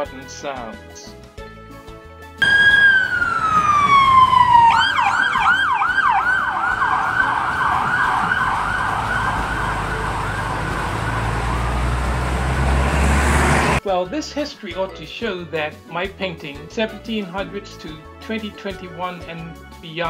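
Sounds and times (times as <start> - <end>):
low traffic rumble: 2.4 - 5.6, 6.2 - 13.8
emergency vehicle siren: 2.4 - 13.8.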